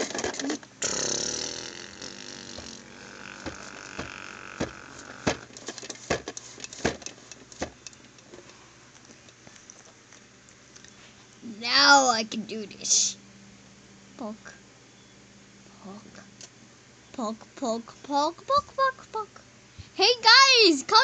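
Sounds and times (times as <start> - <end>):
plastic toys rustling: 0.0 - 0.6, 1.8 - 9.9.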